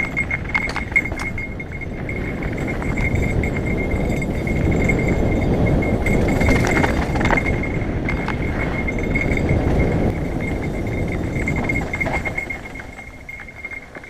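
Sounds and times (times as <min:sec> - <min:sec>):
rattling clicks: 0:00.0 - 0:03.4
bike bell ringing: 0:00.0 - 0:14.0
wind and tyre noise: 0:00.0 - 0:14.0.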